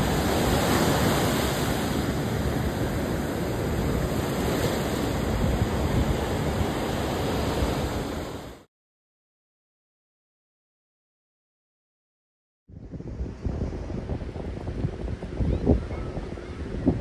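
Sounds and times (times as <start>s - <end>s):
ocean waves breaking: 0.0s - 8.7s.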